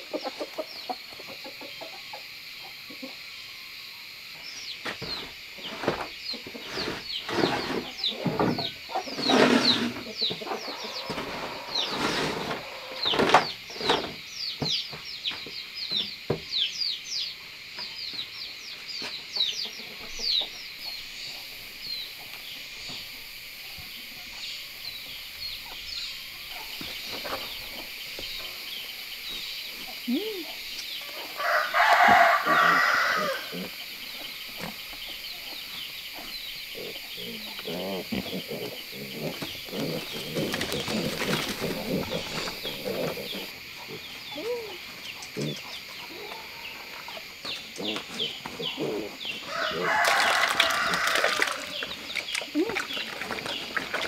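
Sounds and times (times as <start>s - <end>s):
low bird calls: 24.9s - 54.0s
rooster crowing: 31.1s - 33.6s, 49.4s - 51.8s.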